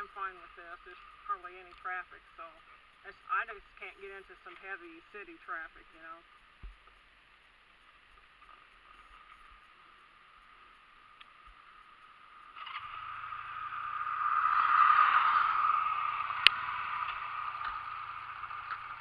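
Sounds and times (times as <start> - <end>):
vehicle engine hum: 0.0 - 19.0
tyre and road noise: 6.2 - 19.0.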